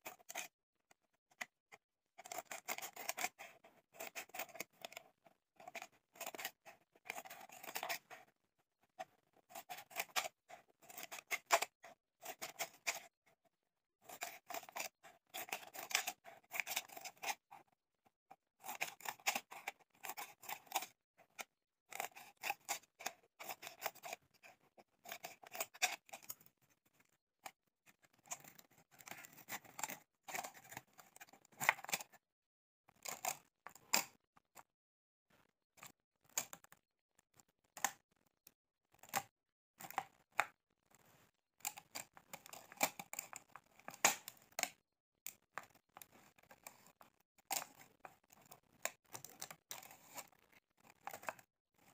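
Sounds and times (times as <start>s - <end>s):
scissors snipping plastic bottle: 41.6s - 44.8s.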